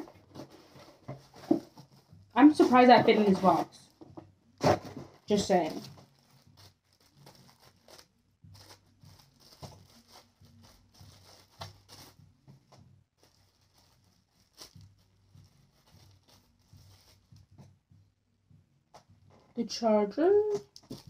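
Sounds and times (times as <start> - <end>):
plastic bag crinkling and tearing: 4.7 - 12.2, 13.2 - 17.4, 20.7 - 21.0.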